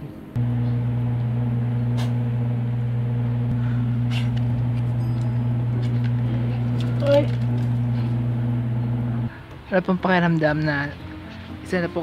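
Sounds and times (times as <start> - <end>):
low electrical hum: 0.4 - 9.3.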